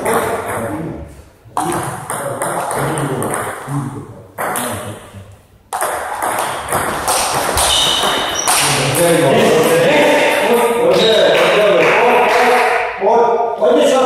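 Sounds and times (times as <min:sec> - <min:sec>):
table tennis ball hits: 0:01.6 - 0:03.7, 0:04.4 - 0:04.8, 0:05.7 - 0:09.2.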